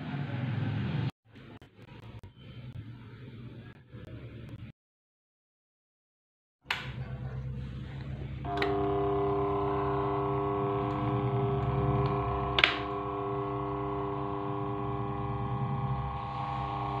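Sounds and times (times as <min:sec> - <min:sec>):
fan motor humming: 0:07.0 - 0:17.0
fan switch click: 0:10.9 - 0:13.0.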